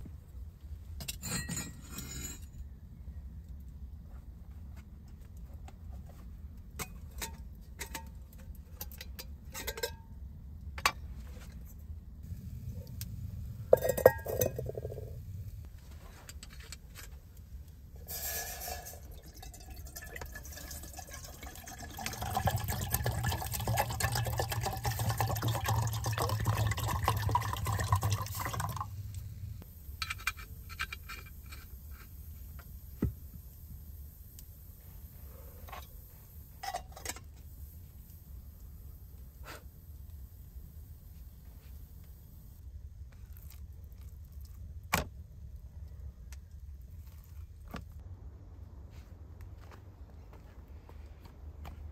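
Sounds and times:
water pouring into metal kettle: 0:18.1 - 0:29.0.

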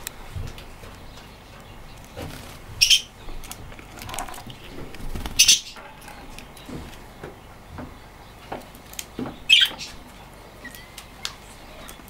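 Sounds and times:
budgerigar chirps: 0:09.5 - 0:10.0.

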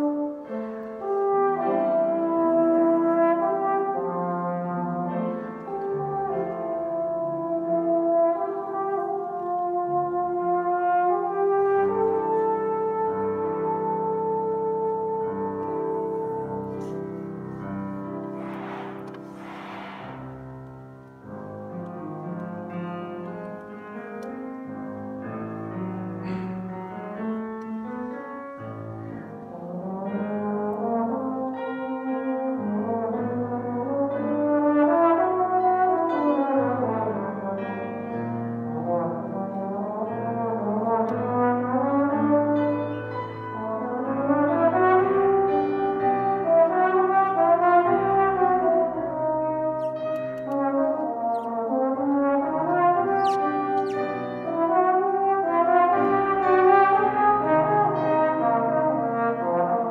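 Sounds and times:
piano accompaniment: 0:00.0 - 0:59.9
trombone glissandi: 0:38.8 - 0:59.9.

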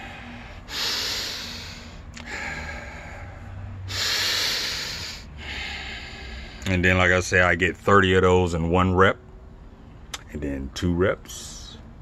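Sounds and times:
man breathing through nose: 0:00.0 - 0:06.7.

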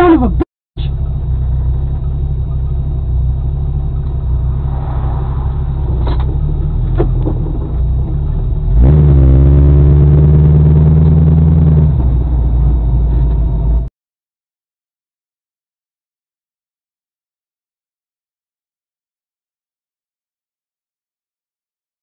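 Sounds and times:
car engine revving: 0:00.0 - 0:13.9
road rumble: 0:00.0 - 0:13.9.

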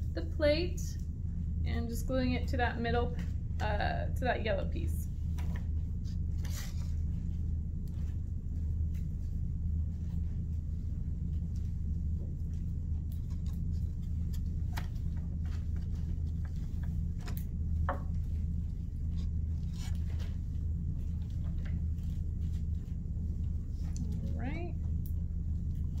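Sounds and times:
steady low hum: 0:00.0 - 0:26.0
taps and rustles of paper: 0:05.2 - 0:07.0, 0:12.5 - 0:24.2.

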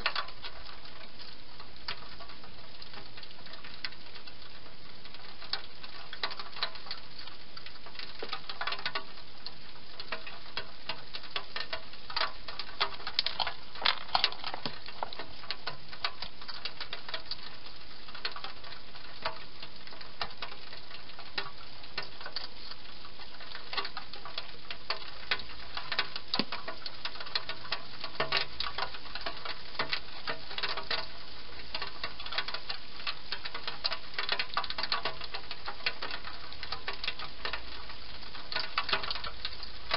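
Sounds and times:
steady hiss: 0:00.0 - 0:39.9
hedgehog crunching food: 0:13.0 - 0:15.4.

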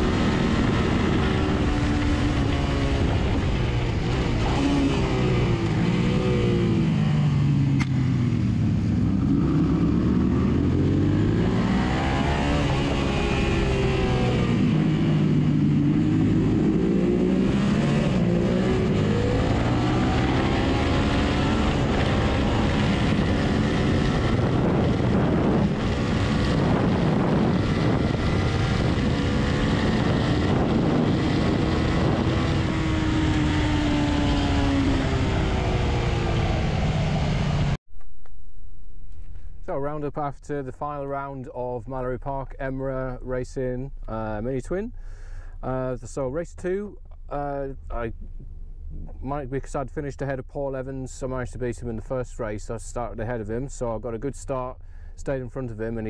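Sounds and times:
racing motorcycle engine accelerating: 0:00.0 - 0:37.8
wind rush: 0:00.0 - 0:37.8.

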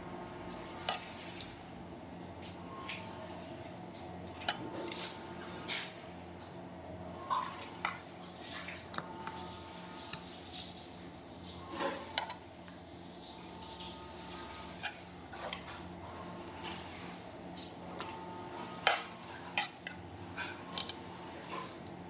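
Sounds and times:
serving spoon clinking and scraping: 0:18.8 - 0:21.0.

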